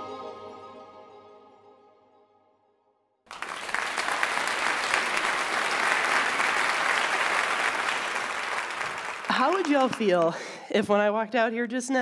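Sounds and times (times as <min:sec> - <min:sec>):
audience applause: 0:03.3 - 0:10.6.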